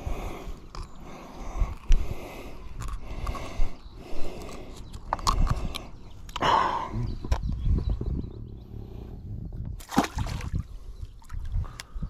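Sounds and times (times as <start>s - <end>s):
low microphone rumble: 6.5s - 11.0s.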